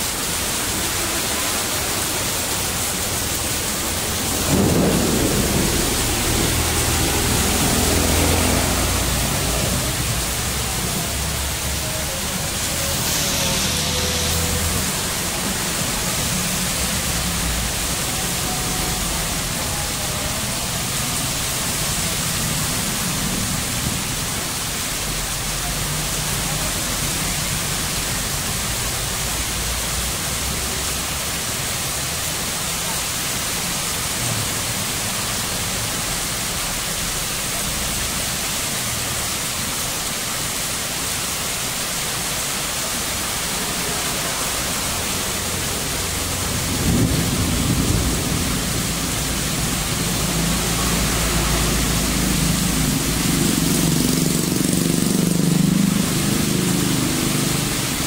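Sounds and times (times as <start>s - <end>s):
heavy rain pouring: 0.0s - 58.0s
deep rumble: 3.2s - 11.6s, 46.1s - 53.4s.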